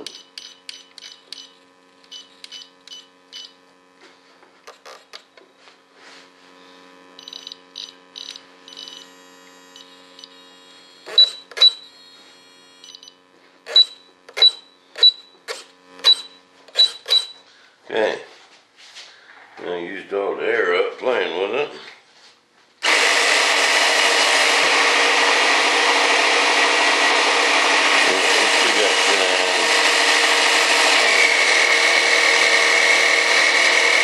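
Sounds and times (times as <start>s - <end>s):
servo buzz: 6.1s - 17.4s, 22.8s - 34.0s
transmitter beeping: 7.2s - 9.1s, 11.0s - 12.2s, 12.8s - 17.4s.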